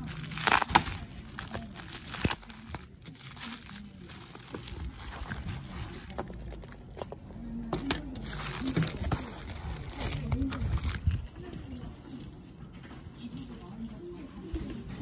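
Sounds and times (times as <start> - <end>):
plastic mailer crinkling: 0.0 - 11.9.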